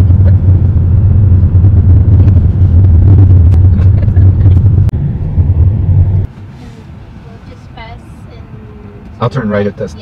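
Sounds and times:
car engine and tyre noise: 0.0s - 10.0s.

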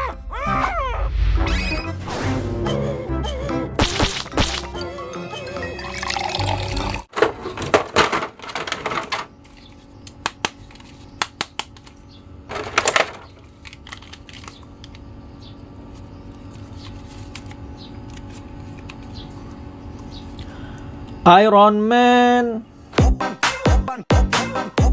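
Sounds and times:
plastic packaging crinkling: 12.5s - 15.1s.

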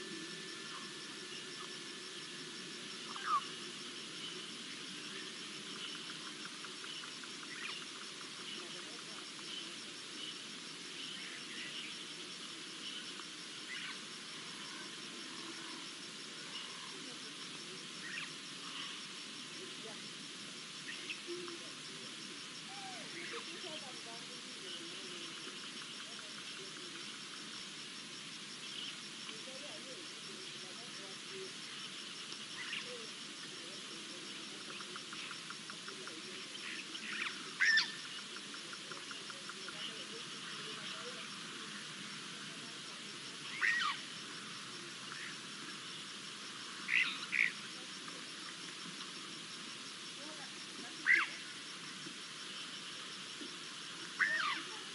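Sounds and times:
pulsed high insect chirping: 0.0s - 54.9s
faint bird chirps: 3.0s - 15.8s, 16.4s - 17.1s, 18.0s - 19.0s, 20.8s - 21.7s, 31.3s - 42.0s, 43.4s - 46.0s, 46.8s - 47.8s, 51.0s - 53.4s, 54.0s - 54.9s.

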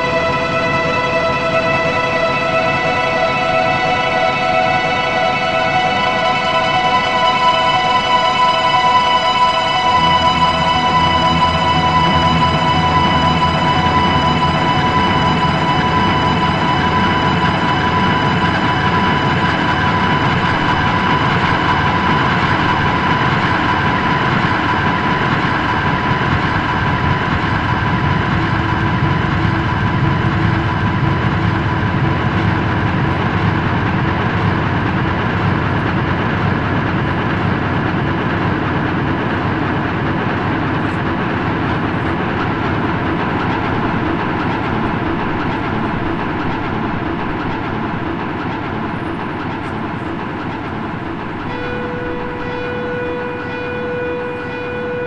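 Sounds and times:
loud mechanical rumble: 0.0s - 55.0s
held tones: 41.7s - 55.0s.

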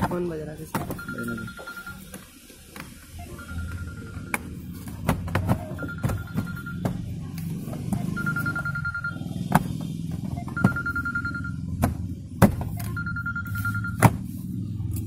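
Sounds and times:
phone ringtone: 0.9s - 2.1s, 3.2s - 4.7s, 5.6s - 7.0s, 8.0s - 9.4s, 10.3s - 11.8s, 12.8s - 14.1s.

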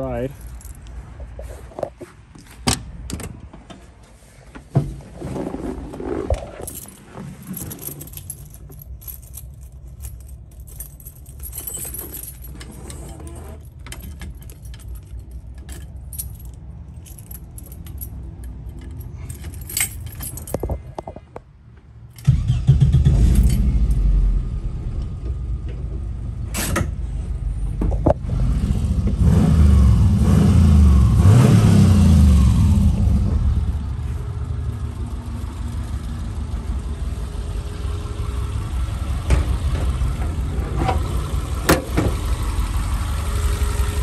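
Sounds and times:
handling clicks and knocks: 6.0s - 21.5s
keys jangling: 6.6s - 21.2s, 23.3s - 23.7s
engine starting with low rumble: 22.2s - 44.0s.

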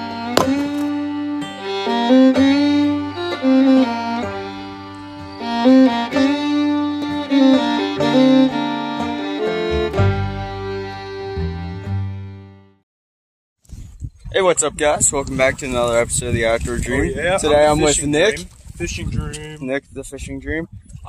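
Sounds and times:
music with held notes: 0.0s - 12.8s.

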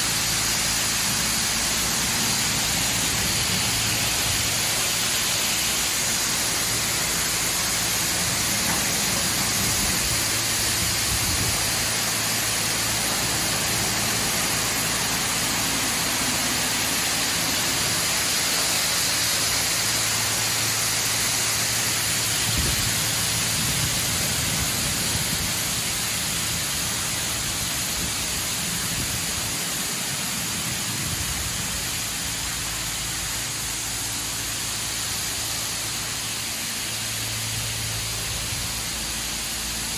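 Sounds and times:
water jets spraying on a car: 0.0s - 39.9s.

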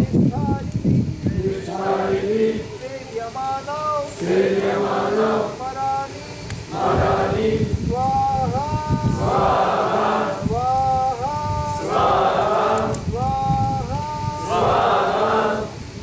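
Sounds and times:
lead voice chanting: 1.3s - 15.8s
group of voices answering: 8.5s - 15.7s.

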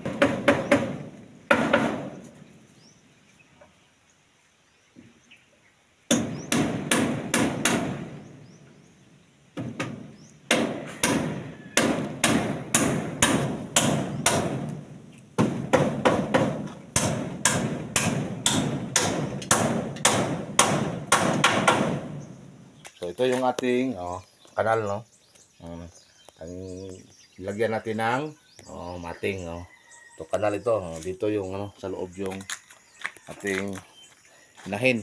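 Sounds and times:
hammer nailing wood: 0.0s - 2.3s, 6.1s - 8.2s, 9.6s - 22.3s.

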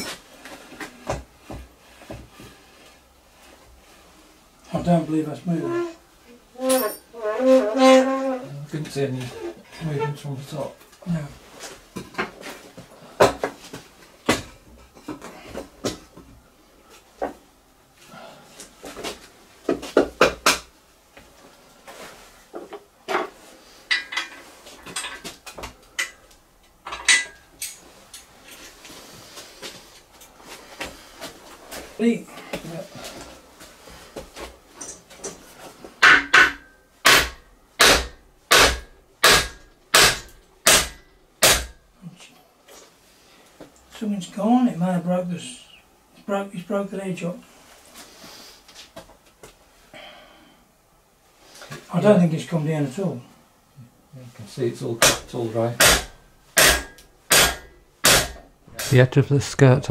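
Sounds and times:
hammer striking metal: 36.0s - 41.7s, 55.0s - 55.2s, 55.8s - 59.0s.

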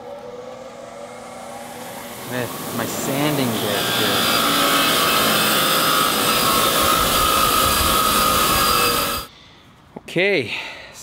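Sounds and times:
wire wheel scrubbing metal: 2.1s - 9.3s.

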